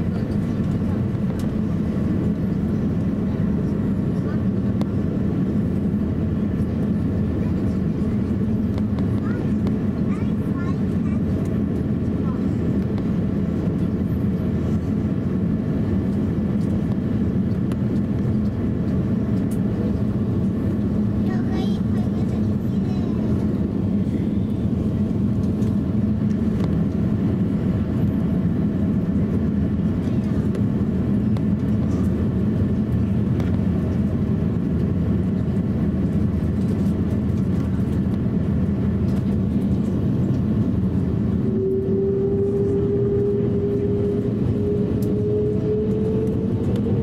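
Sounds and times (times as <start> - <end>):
aircraft cabin low rumble: 0.0 - 47.0
jet engine whine rising: 21.8 - 47.0.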